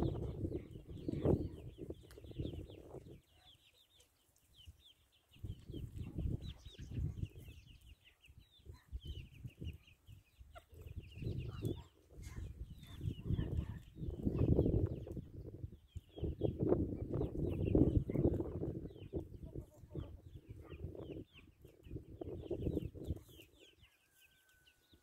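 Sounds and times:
low rumble gusts: 0:00.0 - 0:01.9
chicks peeping: 0:00.0 - 0:25.0.

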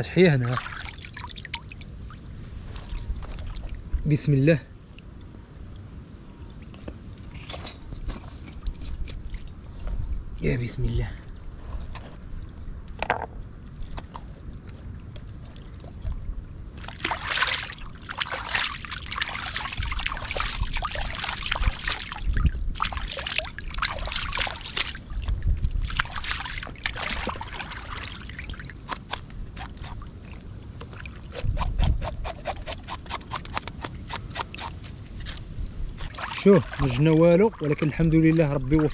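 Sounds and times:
water splashing and sloshing: 0:00.0 - 0:10.4, 0:11.2 - 0:38.9
trickle of running water: 0:00.4 - 0:02.0, 0:12.1 - 0:28.7, 0:36.0 - 0:38.9.

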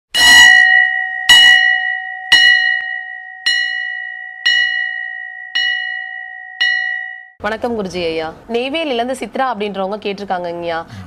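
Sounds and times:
bell ringing: 0:00.1 - 0:07.4.

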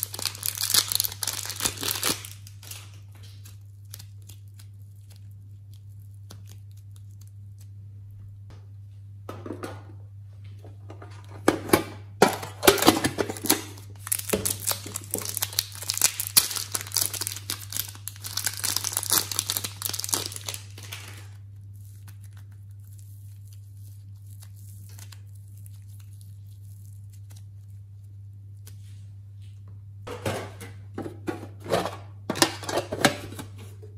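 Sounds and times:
plastic bag crinkling: 0:00.0 - 0:07.8, 0:12.7 - 0:28.9.

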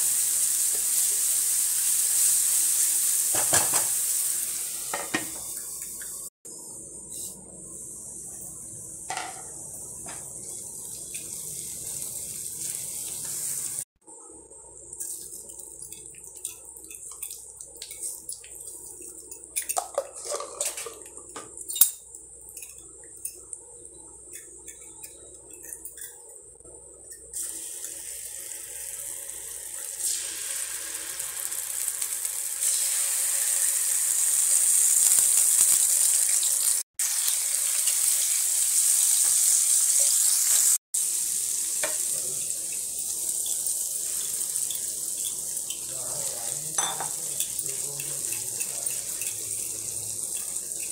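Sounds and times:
hot oil sizzling in a frying pan: 0:00.0 - 0:06.3, 0:08.9 - 0:13.9, 0:27.4 - 0:50.9.

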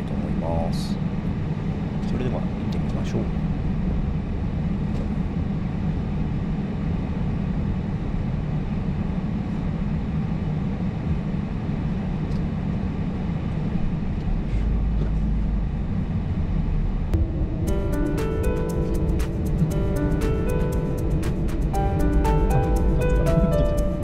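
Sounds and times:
car engine hum: 0:01.1 - 0:24.0.

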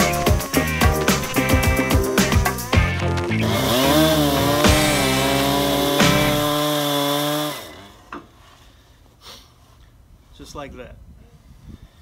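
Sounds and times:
music playing: 0:00.0 - 0:06.5
chainsaw cutting log: 0:00.0 - 0:08.4.

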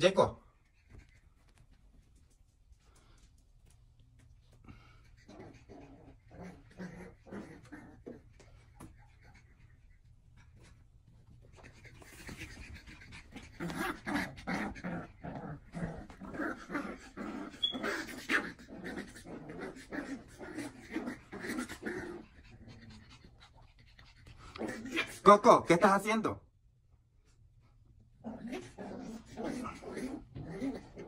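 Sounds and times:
dog panting: 0:04.4 - 0:14.5, 0:19.9 - 0:24.6.

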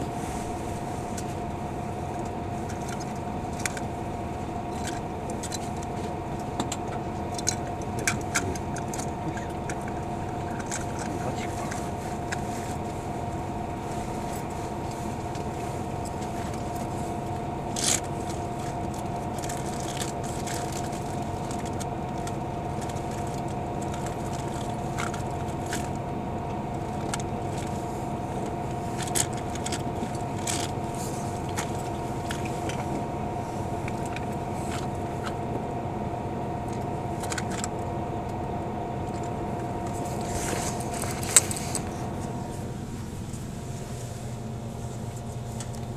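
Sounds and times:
bus engine idling hum: 0:00.0 - 0:45.9.

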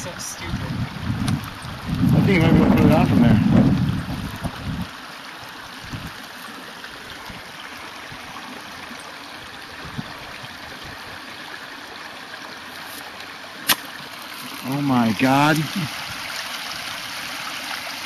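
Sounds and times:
golf club smacking ball in water: 0:13.6 - 0:14.0.

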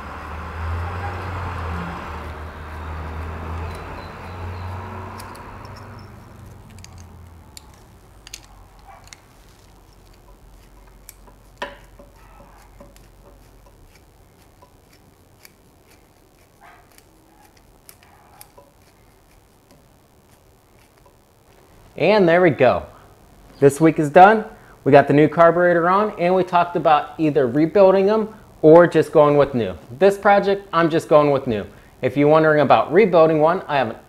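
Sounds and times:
low background rumble: 0:00.0 - 0:22.1
nut driver clicking: 0:02.7 - 0:09.3.

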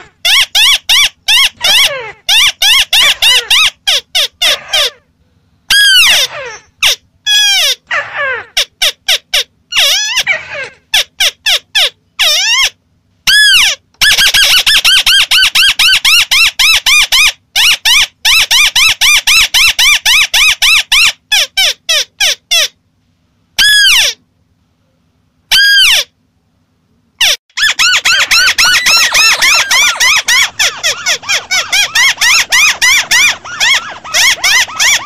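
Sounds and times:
downward-sliding bird calls: 0:27.2 - 0:35.0
crakes harsh chattering calls: 0:27.6 - 0:35.0.

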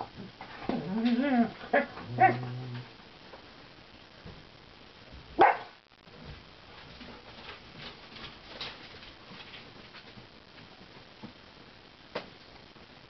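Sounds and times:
dog growling: 0:00.0 - 0:03.0
dog barking: 0:05.4 - 0:05.8.

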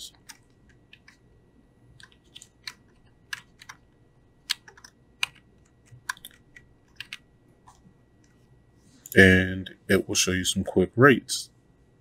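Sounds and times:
keyboard and mouse clicks: 0:00.1 - 0:01.2, 0:02.0 - 0:08.4.

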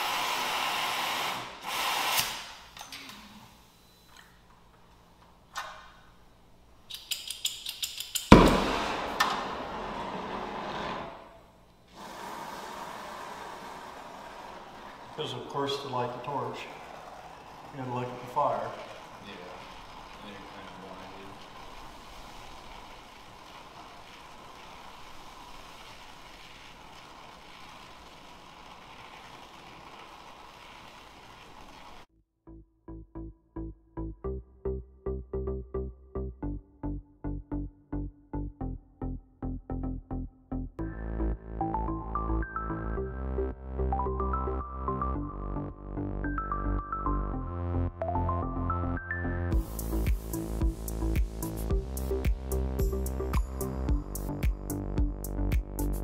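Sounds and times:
torch flame hissing: 0:00.0 - 0:02.7, 0:11.9 - 0:32.1
gas igniting pop: 0:01.7 - 0:02.6, 0:08.3 - 0:09.6.

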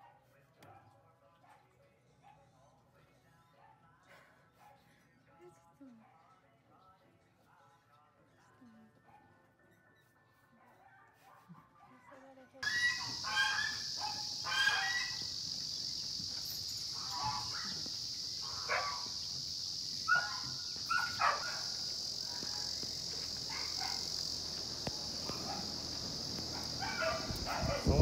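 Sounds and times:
farmyard animals honking: 0:12.6 - 0:15.8, 0:16.8 - 0:19.2, 0:25.2 - 0:27.8
high-pitched insect buzz: 0:12.6 - 0:28.0.

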